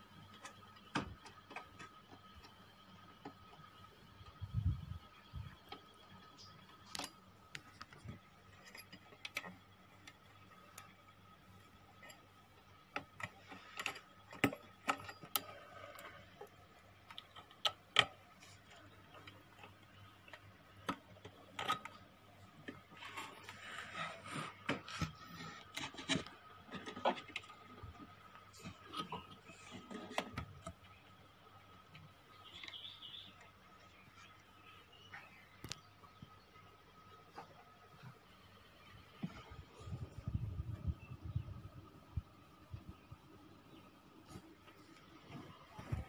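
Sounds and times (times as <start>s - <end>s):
faint steady whine: 0.0s - 46.0s
low hum: 0.0s - 46.0s.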